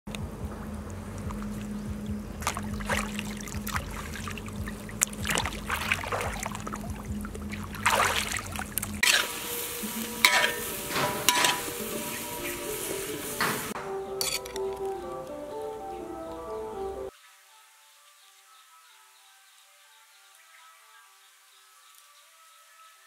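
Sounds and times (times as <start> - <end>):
low steady hum: 0.1 - 12.2
water lapping and splashing: 0.1 - 13.8
food sizzling in a hot pan: 9.0 - 14.4
metal spatula clinks: 14.2 - 14.6.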